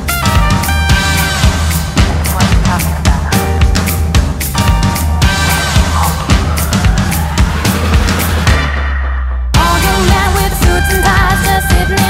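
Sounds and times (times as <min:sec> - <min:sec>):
upbeat rock-pop song: 0:09.6 - 0:12.0.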